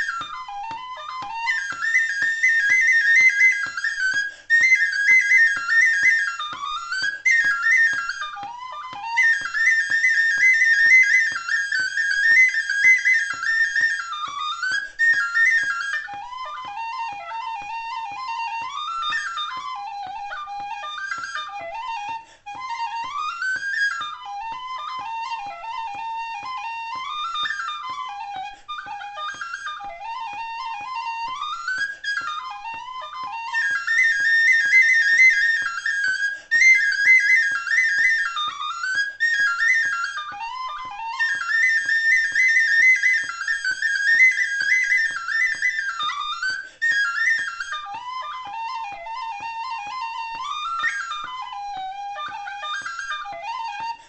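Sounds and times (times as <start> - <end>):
tin whistle playing a fast reel: 26.9 - 54.0.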